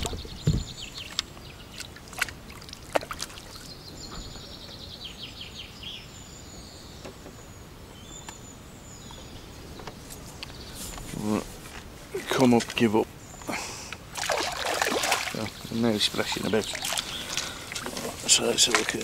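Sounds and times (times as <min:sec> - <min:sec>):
small birds singing: 0:00.0 - 0:19.0
water splashing from a fish: 0:01.8 - 0:03.7, 0:14.1 - 0:15.6, 0:16.2 - 0:19.0.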